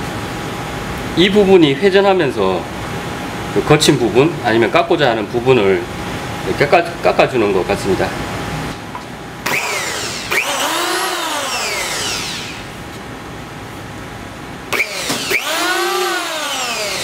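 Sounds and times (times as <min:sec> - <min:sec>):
electric hand planer whining: 0:09.5 - 0:12.7, 0:14.8 - 0:17.0.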